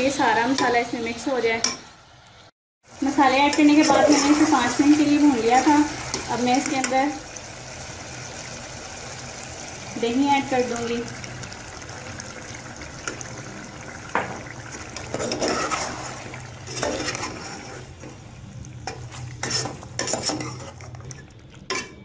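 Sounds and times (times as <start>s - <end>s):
metal spoon scraping a pot: 15.0s - 18.0s, 18.9s - 22.0s.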